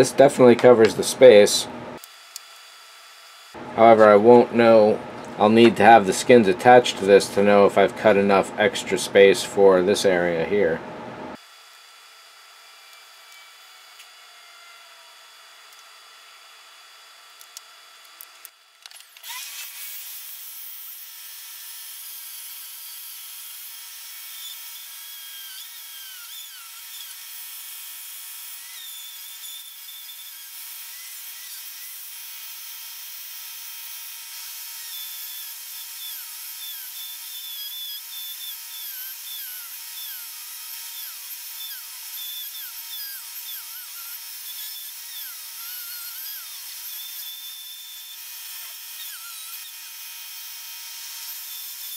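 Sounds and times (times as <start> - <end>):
rotary tool cutting wood: 12.0 - 51.9.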